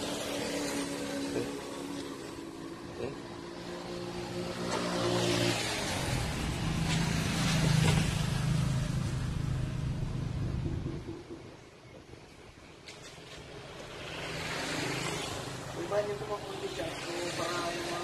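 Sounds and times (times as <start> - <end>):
vehicle engine humming: 0.0 - 12.2.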